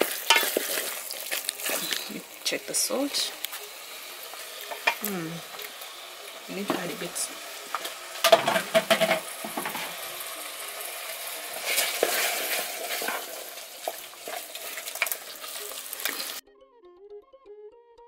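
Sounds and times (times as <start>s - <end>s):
spoon stirring and scraping a pot: 0.0s - 2.2s, 4.3s - 5.7s, 7.7s - 10.0s, 11.6s - 16.4s
sauce sizzling and simmering: 0.0s - 16.4s.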